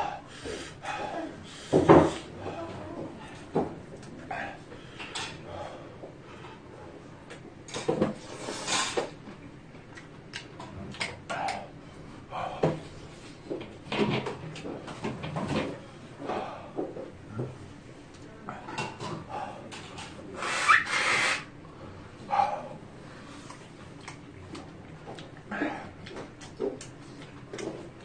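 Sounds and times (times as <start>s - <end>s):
man slurping noodles: 20.4s - 21.4s.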